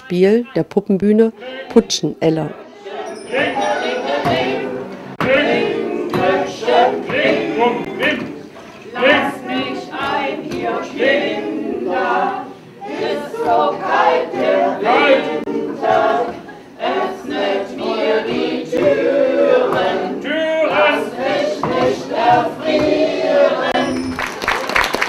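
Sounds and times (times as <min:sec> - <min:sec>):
group singing unaccompanied: 0:00.0 - 0:24.2.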